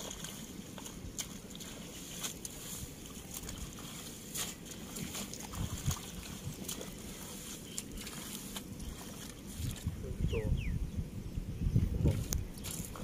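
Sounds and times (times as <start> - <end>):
hands squelching through mud: 0.0 - 9.9
small water splashes: 0.0 - 10.0, 12.1 - 13.0
wind rumble on microphone: 0.0 - 13.0.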